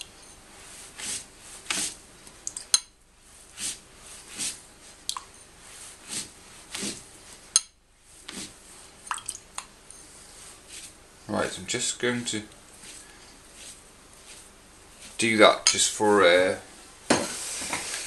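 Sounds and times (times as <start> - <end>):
brush scraping across paper: 0.5 - 2.0, 3.2 - 5.0, 5.6 - 7.5, 8.1 - 9.0, 10.1 - 11.0, 12.7 - 15.4.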